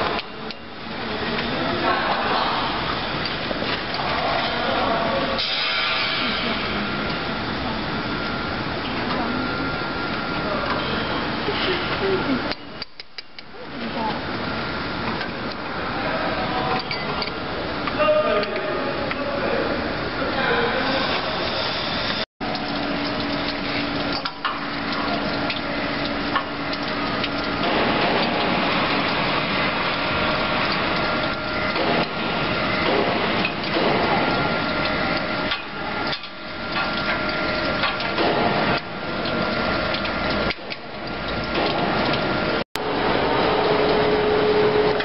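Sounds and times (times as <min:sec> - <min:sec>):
machine metallic clatter: 0:22.4 - 0:42.3.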